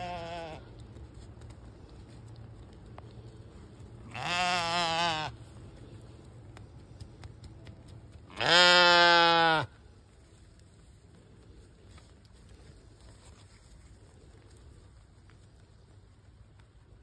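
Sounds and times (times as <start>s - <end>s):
sheep bleating: 0.0s - 0.7s, 4.0s - 5.4s, 8.3s - 9.7s.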